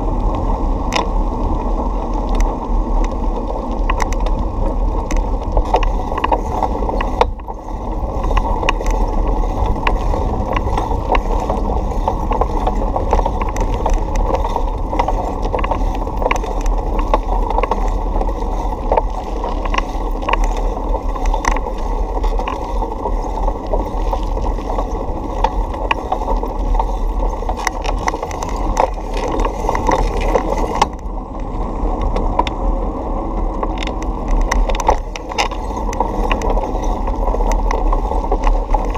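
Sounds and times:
bicycle tyres rumbling on asphalt: 0.0s - 38.9s
bike rattles and clicks: 0.0s - 38.9s.

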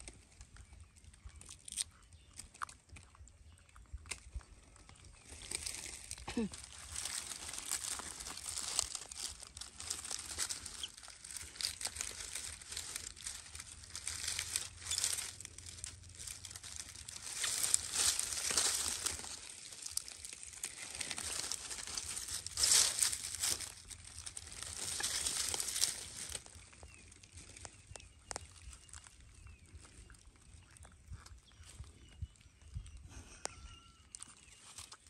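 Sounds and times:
dry leaves rustling and crackling: 5.2s - 30.0s.

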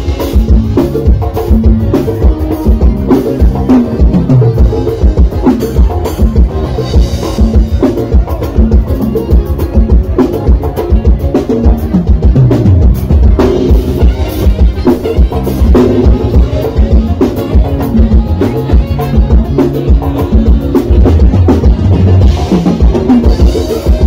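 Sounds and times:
live band playing amplified music: 0.0s - 24.0s.

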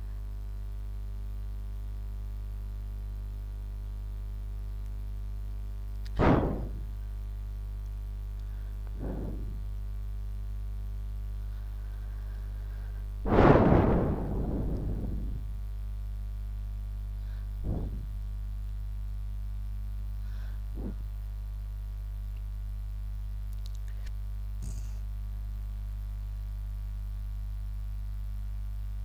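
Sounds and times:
electrical mains hum: 0.0s - 29.0s
faint thumps and clicks: 8.9s - 9.7s, 17.6s - 18.2s.

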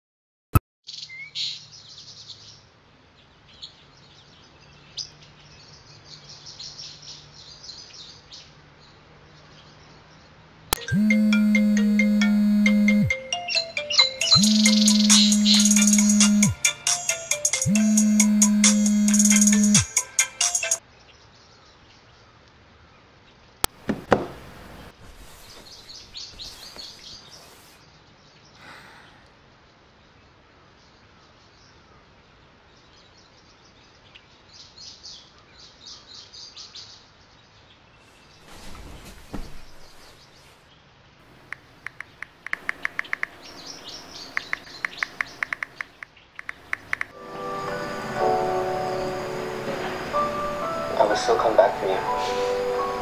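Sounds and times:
small birds chirping: 0.9s - 16.6s, 24.7s - 38.6s, 39.3s - 47.2s
rustling of bedding: 24.3s - 27.8s, 38.0s - 40.7s
sharp click: 41.5s - 43.4s, 44.3s - 47.2s.

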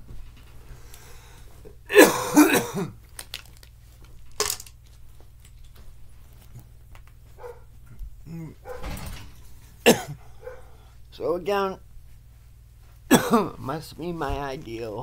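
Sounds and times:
man coughing: 1.9s - 3.0s, 9.8s - 10.6s, 13.1s - 13.6s.

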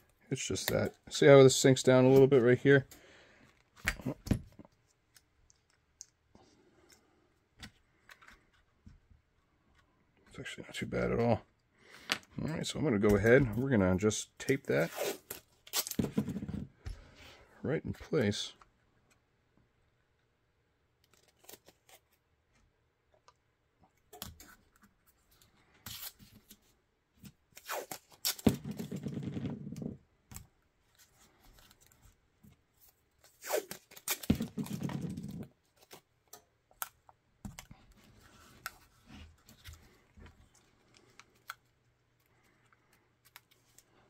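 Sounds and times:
tape clicks and rustles: 31.3s - 44.0s.

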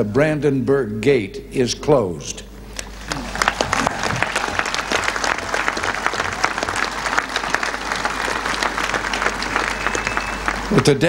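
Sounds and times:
crowd applauding: 3.0s - 11.0s.

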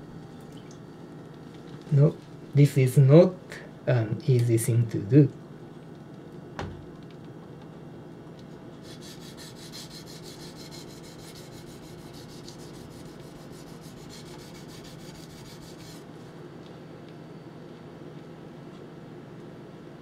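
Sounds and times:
knife scraping on whetstone: 8.9s - 16.0s.

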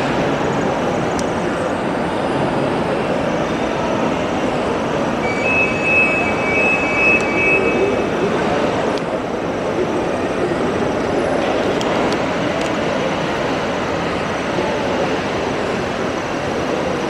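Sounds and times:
shopping mall background din: 0.0s - 17.0s
thin high two-pitch tone: 5.2s - 8.2s.

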